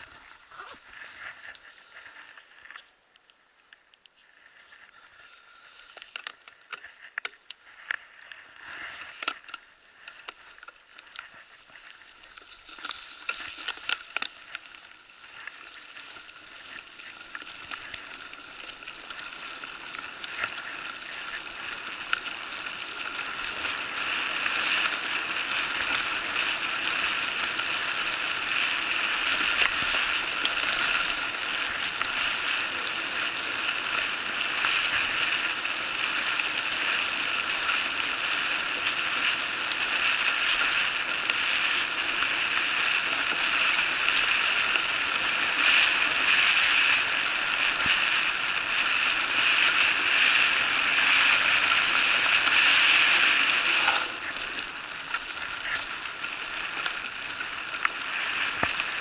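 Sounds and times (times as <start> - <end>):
bicycle tyres crunching on dirt: 0.0 - 59.0
bike parts clicking and rattling: 5.8 - 59.0.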